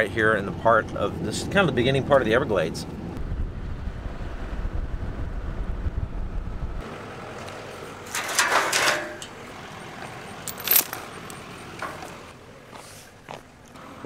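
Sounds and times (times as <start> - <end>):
metal gate clanking: 8.0 - 9.4, 10.5 - 11.1
chain rattling: 10.4 - 11.1.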